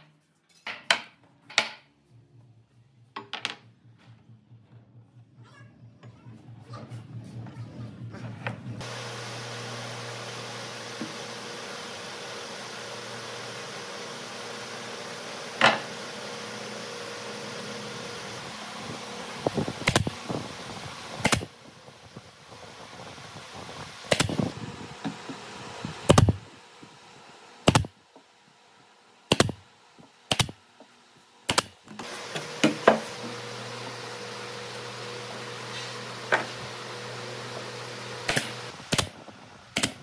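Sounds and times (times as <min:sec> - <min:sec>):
shop hum: 0:00.0 - 0:40.0
nail gun firing into wood: 0:19.8 - 0:20.2, 0:21.2 - 0:21.5, 0:24.1 - 0:24.5, 0:26.1 - 0:26.4, 0:27.7 - 0:28.0, 0:29.3 - 0:29.6, 0:30.3 - 0:30.6, 0:31.5 - 0:31.8, 0:38.2 - 0:39.2, 0:39.8 - 0:40.0.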